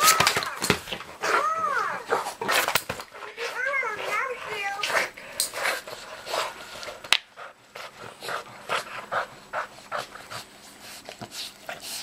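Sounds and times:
dog panting: 0:03.1 - 0:12.0.

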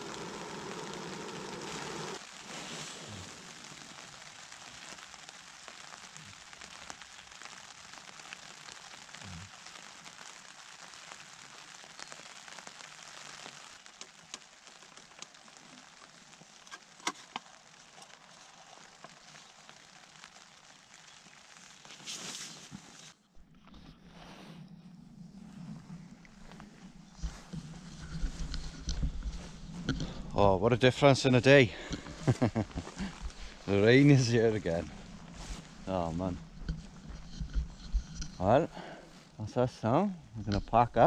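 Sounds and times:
gas stove burner hissing: 0:00.0 - 0:03.4
rain pattering on tent: 0:00.0 - 0:41.0.

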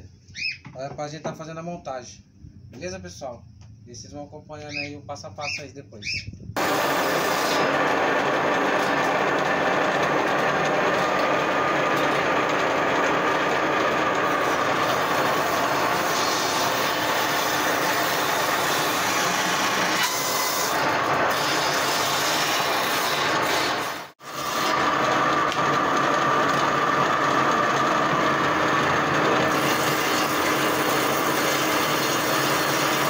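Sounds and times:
table saw whirring: 0:06.1 - 0:33.0
saw blade rasping in wood: 0:06.6 - 0:26.7, 0:29.1 - 0:33.0.

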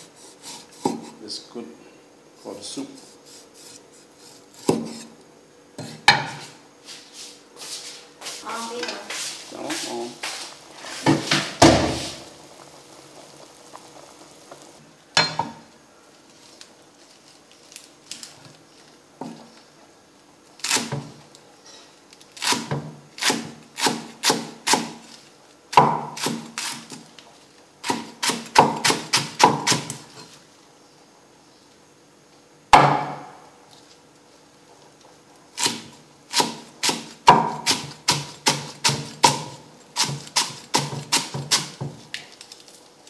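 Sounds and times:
cleaver chopping on wooden board: 0:25.8 - 0:26.5, 0:35.6 - 0:41.9.

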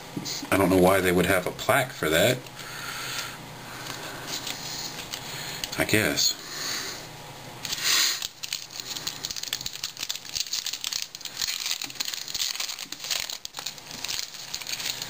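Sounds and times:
foil wrapper crackling: 0:07.7 - 0:15.0.

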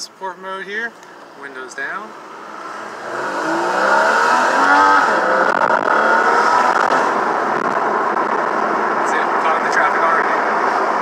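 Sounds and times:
car engine accelerating hard: 0:02.4 - 0:11.0.

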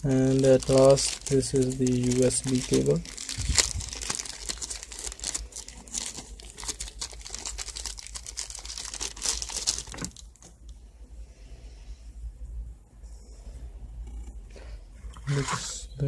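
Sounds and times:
plastic wrapper crinkling: 0:00.0 - 0:10.7.

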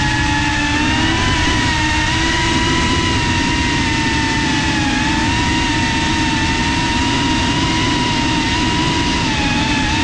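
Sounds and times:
drone propellers whining: 0:00.0 - 0:10.0.

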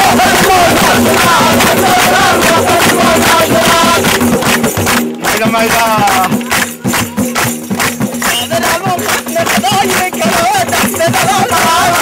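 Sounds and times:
men singing folk song: 0:00.0 - 0:04.3, 0:08.3 - 0:12.0
rhythmic hand-clapping: 0:00.0 - 0:12.0
tambourine: 0:00.0 - 0:12.0.

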